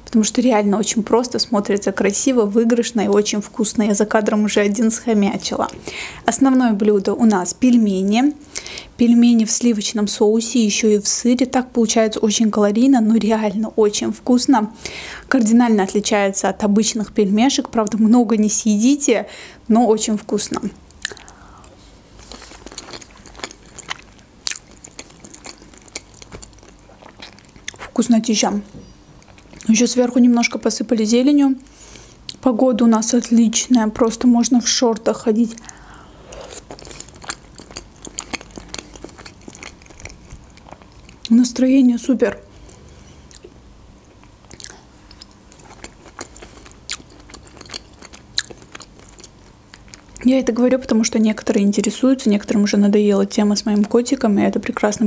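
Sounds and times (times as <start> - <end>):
chewing with mouth clicks: 20.9 - 27.9, 35.5 - 41.3, 42.6 - 50.2.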